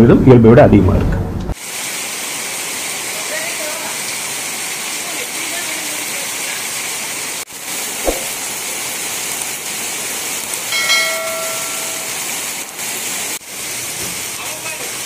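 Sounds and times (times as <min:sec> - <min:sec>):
heavy rain pouring: 0:01.6 - 0:15.0
short thump: 0:08.0 - 0:08.4.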